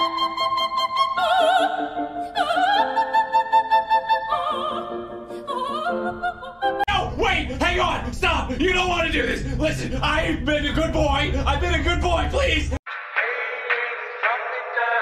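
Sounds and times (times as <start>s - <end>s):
operatic voice singing: 5.5s - 15.0s.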